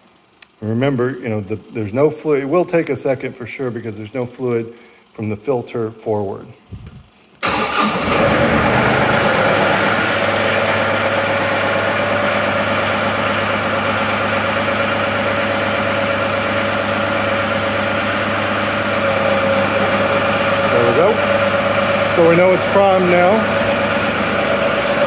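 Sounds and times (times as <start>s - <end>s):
tractor diesel engine idling: 7.4s - 25.0s.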